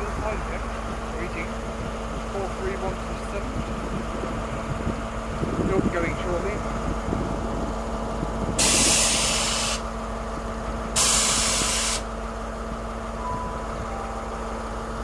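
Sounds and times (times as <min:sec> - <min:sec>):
low engine hum: 0:00.0 - 0:15.0
compressed air hissing: 0:08.6 - 0:09.9, 0:11.0 - 0:12.1.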